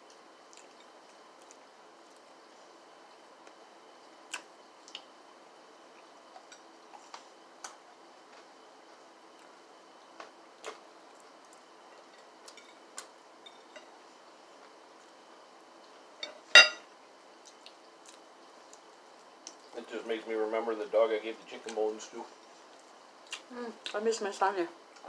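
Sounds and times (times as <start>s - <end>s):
faint hum: 0.0s - 25.0s
chewing: 0.1s - 2.3s, 17.4s - 19.7s.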